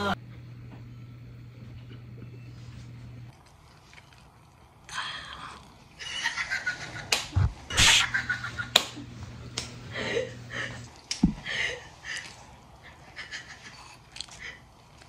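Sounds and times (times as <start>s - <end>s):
open-mouthed chewing: 3.3s - 6.0s, 13.6s - 15.0s.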